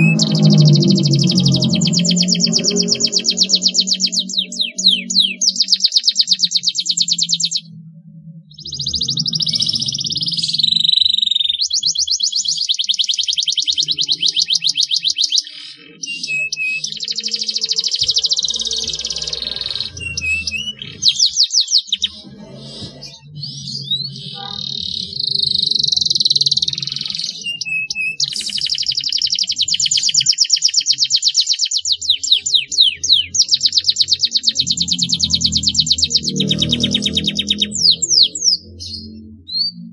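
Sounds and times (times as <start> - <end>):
canary singing trills: 0.0 - 39.9.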